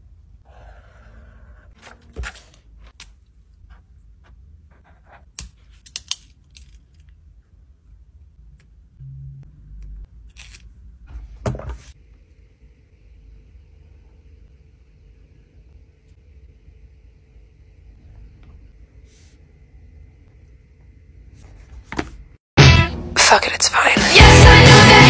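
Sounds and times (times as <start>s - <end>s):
rustling of tabs: 10.3s - 10.7s.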